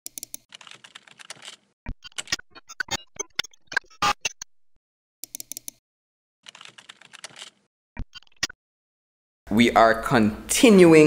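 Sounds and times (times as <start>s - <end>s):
digital glitch clicks and stutters: 1.9s - 4.5s.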